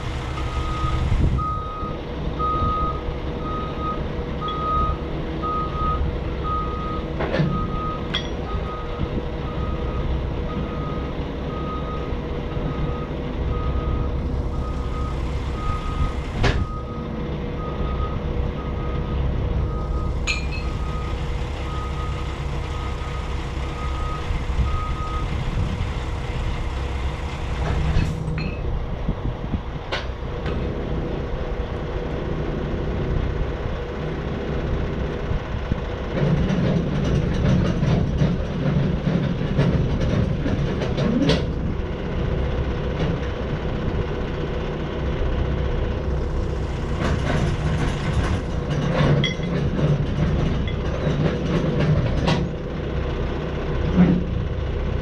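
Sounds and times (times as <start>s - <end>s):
diesel engine running: 0.0s - 55.0s
vehicle backup alarm beeping: 0.1s - 25.7s.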